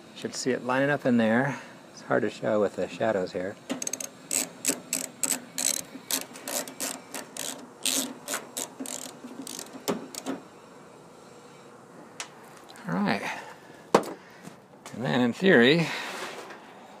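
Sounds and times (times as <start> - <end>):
ratchet wrench clicking: 3.8 - 10.3.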